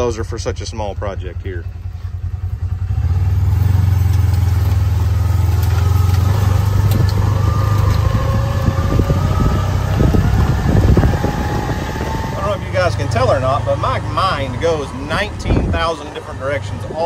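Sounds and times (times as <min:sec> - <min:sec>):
diesel engine droning: 0:00.0 - 0:17.0
faint whine rising in pitch: 0:05.2 - 0:17.0.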